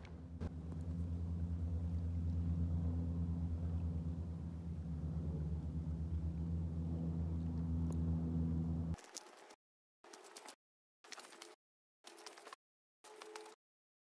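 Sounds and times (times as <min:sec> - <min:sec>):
propeller aircraft engine drone: 0:00.0 - 0:09.6.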